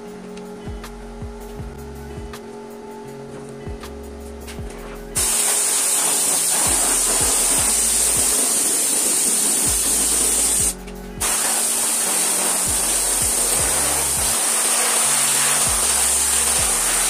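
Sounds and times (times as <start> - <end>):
compressed air hissing: 5.2 - 17.0.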